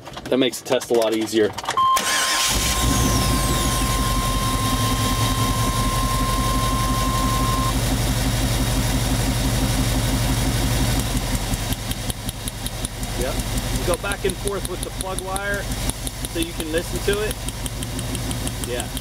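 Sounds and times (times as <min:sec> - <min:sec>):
van engine misfiring at idle: 0:02.0 - 0:19.0
steady high tone: 0:02.5 - 0:07.8.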